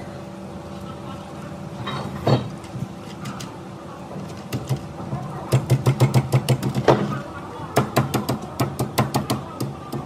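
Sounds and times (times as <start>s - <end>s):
steady hum: 0.0s - 10.0s.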